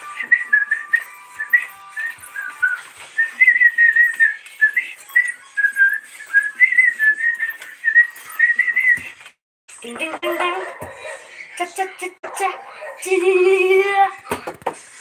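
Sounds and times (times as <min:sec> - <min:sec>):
person whistling a tune: 0:00.0 - 0:09.2.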